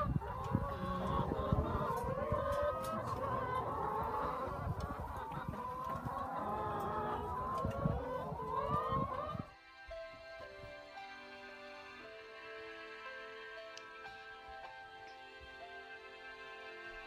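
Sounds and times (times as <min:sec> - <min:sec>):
hens clucking: 0:00.0 - 0:09.5.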